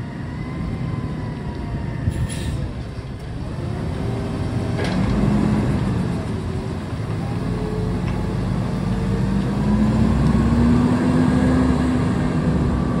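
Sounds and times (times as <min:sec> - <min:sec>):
garbage truck engine accelerating: 0:02.6 - 0:13.0.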